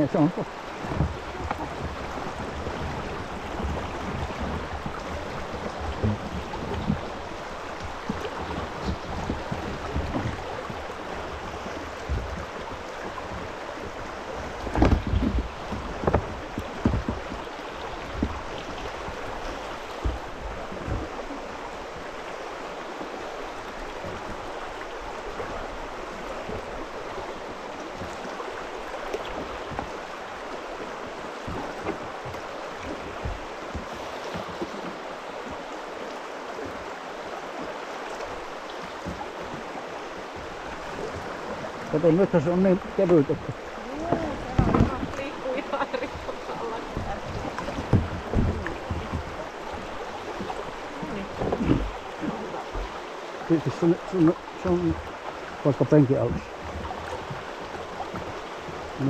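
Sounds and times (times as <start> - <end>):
river water rushing over rapid: 0.0 - 59.0
low thumps: 42.8 - 52.9.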